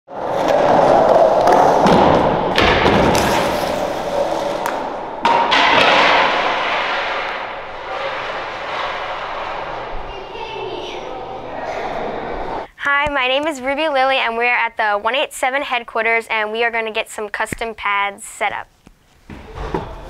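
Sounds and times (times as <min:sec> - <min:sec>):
skateboard wheels rolling on concrete: 0:00.1 - 0:11.0.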